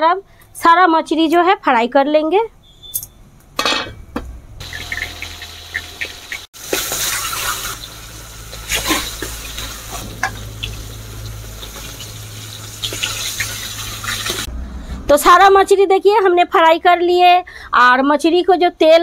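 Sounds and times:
fish sizzling in hot oil: 4.6s - 14.5s.

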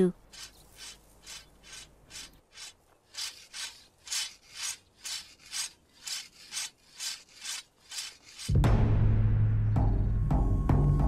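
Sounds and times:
knife rasping on sharpener: 0.3s - 8.5s.

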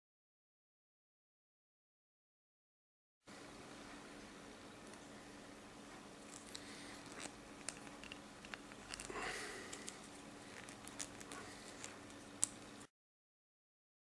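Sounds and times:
plastic pieces scraping: 6.3s - 12.9s
small plastic clicks: 9.7s - 12.8s.

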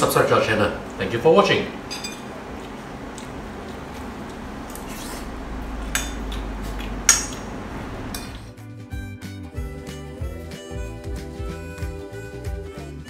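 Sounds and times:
low steady hum: 0.0s - 8.6s.

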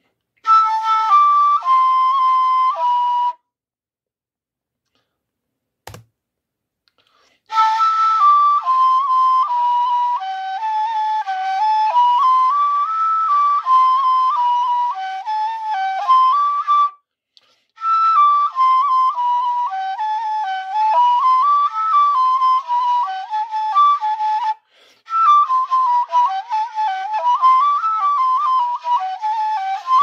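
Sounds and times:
wooden flute folk melody: 0.0s - 3.6s, 7.4s - 30.0s.

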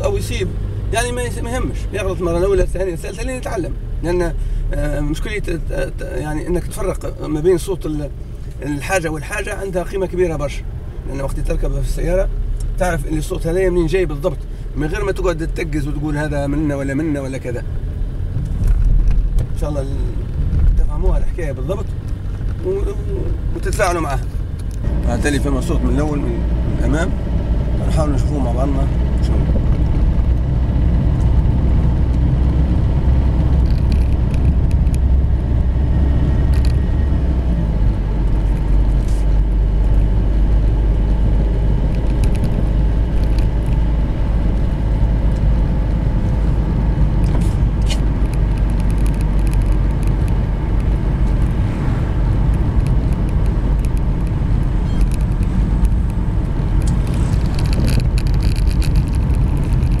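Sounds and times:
car engine and tyre rumble: 0.0s - 60.0s.

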